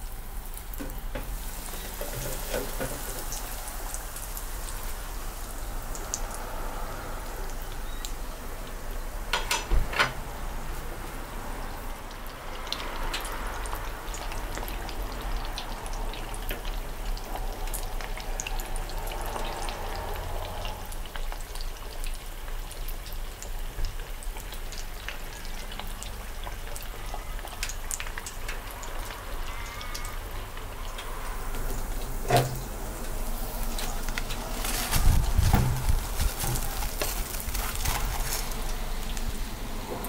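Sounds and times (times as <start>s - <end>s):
cutlet deep-frying in oil: 0.0s - 40.0s.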